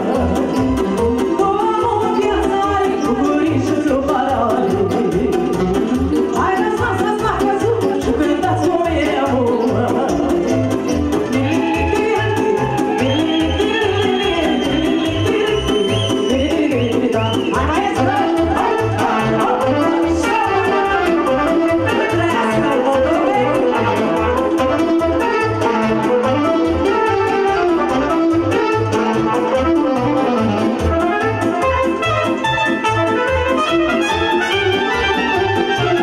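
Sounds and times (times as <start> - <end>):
keyboard accompaniment: 0.0 - 36.0
saxophone melody: 16.8 - 36.0.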